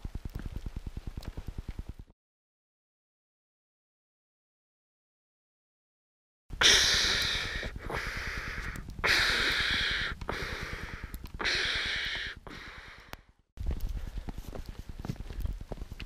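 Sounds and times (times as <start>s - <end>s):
heavy breathing: 6.6s - 13.3s.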